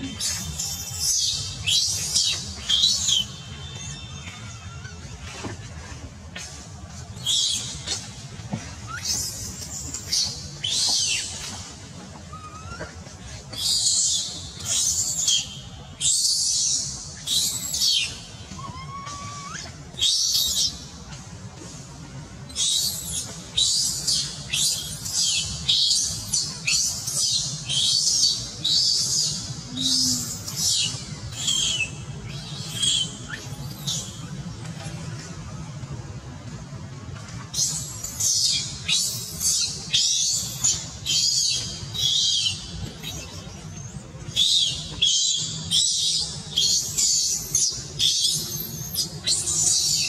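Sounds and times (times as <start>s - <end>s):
infant monkey screaming: 0.1s - 5.4s, 16.2s - 20.4s.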